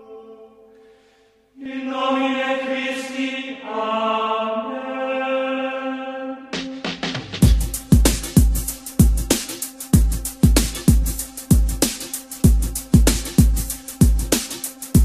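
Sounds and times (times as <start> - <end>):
chant-like held vocal notes: 0.0 - 6.8
beat-driven track with drum hits: 6.5 - 15.0.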